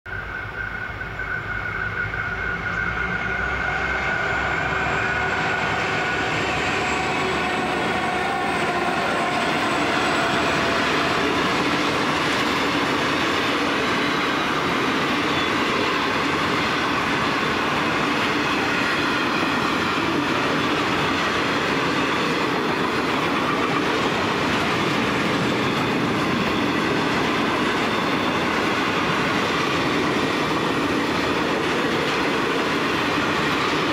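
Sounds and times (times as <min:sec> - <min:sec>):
faint thin wheel squeal: 0:00.1 - 0:11.2
train wheels roaring on rails: 0:00.1 - 0:33.9.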